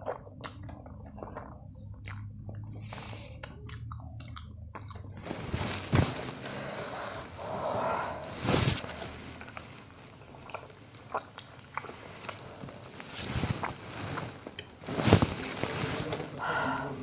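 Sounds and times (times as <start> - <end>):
chewing: 0.0 - 5.6, 9.0 - 14.8.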